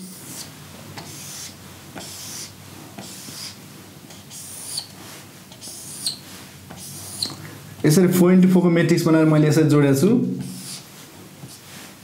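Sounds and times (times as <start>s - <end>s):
marker squeaking: 0.0s - 7.9s, 10.4s - 10.8s
marker scratching on whiteboard: 0.0s - 8.0s, 10.4s - 11.7s.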